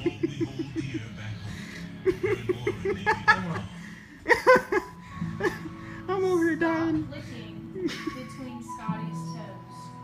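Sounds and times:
people laughing: 0.0s - 5.8s, 7.8s - 8.3s.

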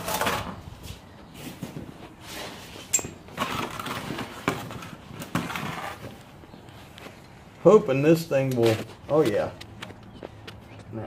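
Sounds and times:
rustling and scraping: 0.0s - 7.5s.

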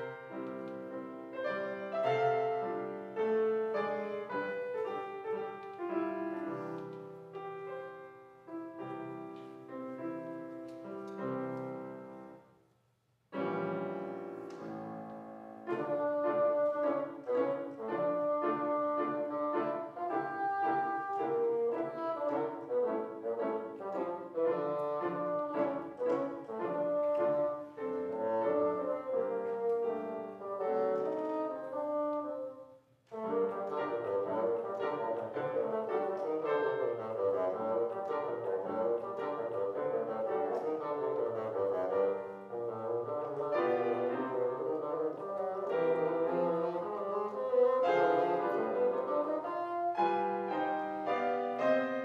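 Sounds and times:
wind instrument melody: 0.0s - 12.4s, 13.4s - 52.0s
piano accompaniment: 0.0s - 52.0s.

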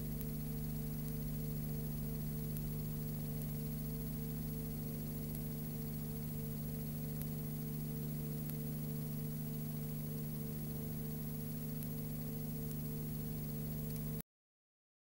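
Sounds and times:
electrical hum: 0.0s - 14.2s
faint clicks: 5.2s - 6.0s, 7.0s - 7.4s, 11.7s - 12.8s, 13.7s - 14.2s.

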